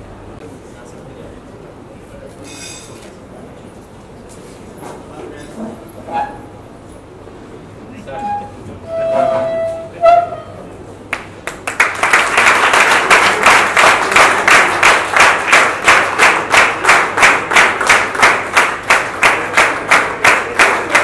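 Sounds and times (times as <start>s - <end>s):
audience clapping in unison: 11.1s - 21.0s.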